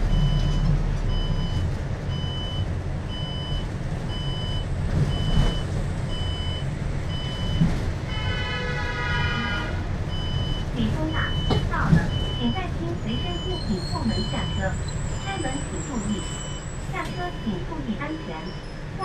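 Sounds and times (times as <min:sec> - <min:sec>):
bus engine and road rumble: 0:00.0 - 0:19.0
high electronic warning beep: 0:10.1 - 0:18.7.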